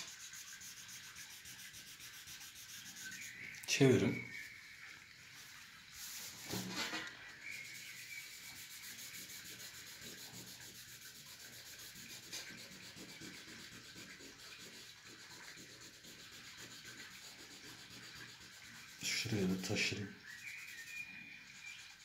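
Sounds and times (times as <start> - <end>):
paper napkin rubbing on paper: 0.0 - 3.4, 6.0 - 7.1, 7.7 - 19.9.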